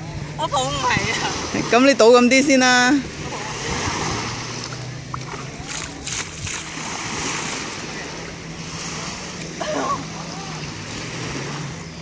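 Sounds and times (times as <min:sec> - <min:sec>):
small waves washing on shore: 0:00.2 - 0:12.0
water splashing onto wet sand: 0:03.1 - 0:11.8.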